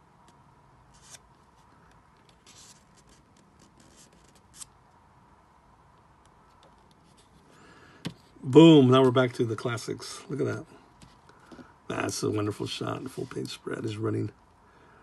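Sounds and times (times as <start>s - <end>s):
book pages turning: 0.9s - 4.7s.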